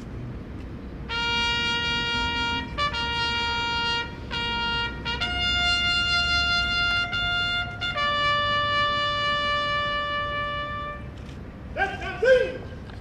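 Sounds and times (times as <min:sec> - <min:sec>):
solo trumpet bugle call: 0:01.0 - 0:11.2.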